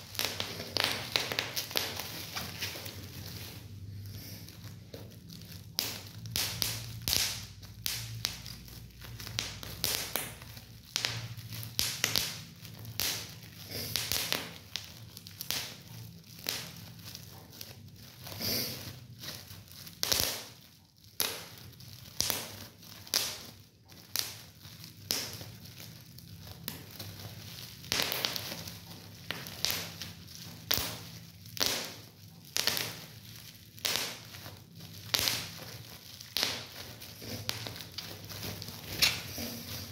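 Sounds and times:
bubble wrap popping: 0.0s - 39.9s
plastic sheet crinkling: 0.0s - 39.9s.

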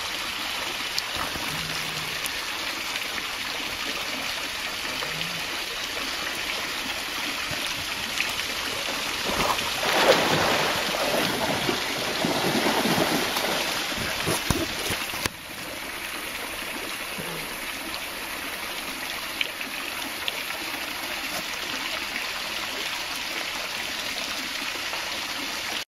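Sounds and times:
small waterfall splashing into pool: 0.0s - 25.8s
animal wading through water: 4.4s - 19.0s.

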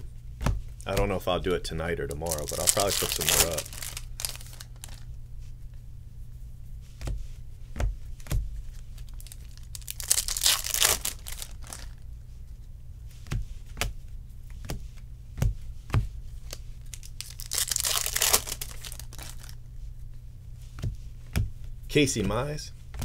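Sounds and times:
crinkly paper rustle: 2.1s - 5.1s, 8.9s - 12.0s, 16.9s - 19.6s.

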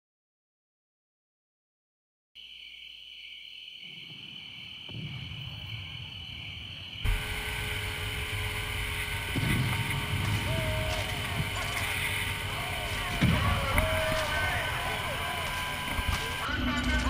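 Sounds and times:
wind: 2.4s - 8.7s
water noise: 4.5s - 16.5s
steady high hum: 5.5s - 17.0s
motorboat engine rumble: 7.1s - 16.4s.

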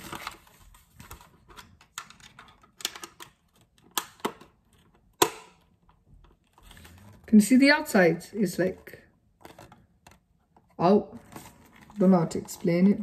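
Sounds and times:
plastic clicks and knocks: 1.5s - 6.6s.

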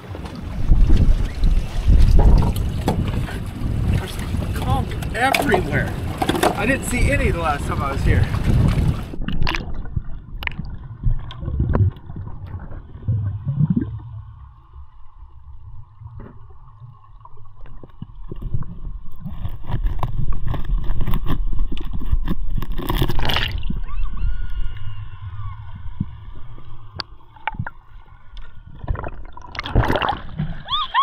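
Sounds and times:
muffled water gurgling underwater: 0.0s - 6.2s, 6.8s - 24.4s
rush of water: 0.0s - 12.9s.

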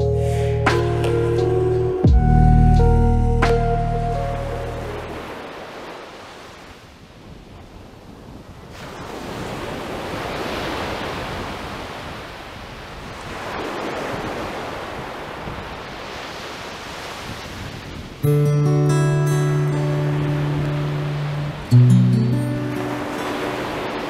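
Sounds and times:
music: 0.0s - 5.3s, 18.2s - 24.0s
surf washing onto beach: 3.5s - 7.3s, 8.5s - 24.0s.

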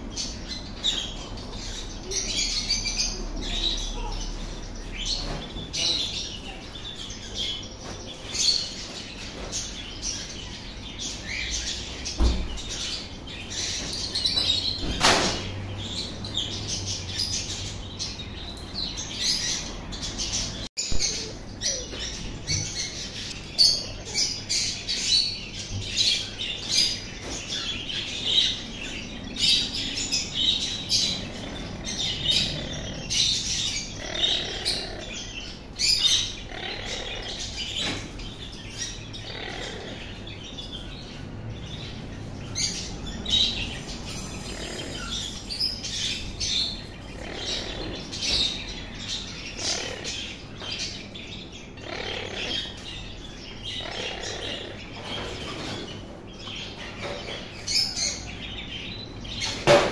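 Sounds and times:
parrot chirping and squawking: 29.4s - 40.4s, 42.6s - 51.0s, 51.7s - 58.3s.

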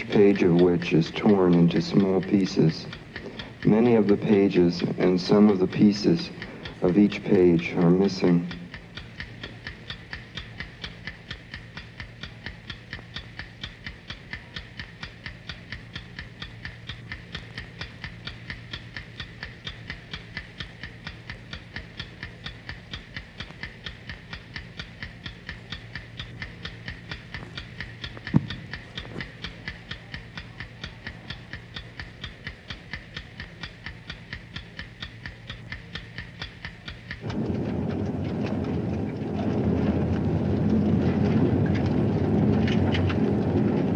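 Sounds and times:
clock ticking: 0.0s - 43.9s
low steady hum: 0.0s - 43.9s
loud rumbling: 27.3s - 29.3s, 37.2s - 43.9s.

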